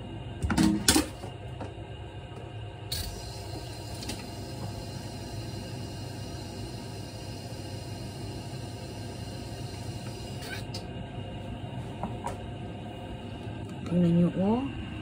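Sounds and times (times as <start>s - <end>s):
gas stove burner hissing: 2.8s - 11.1s.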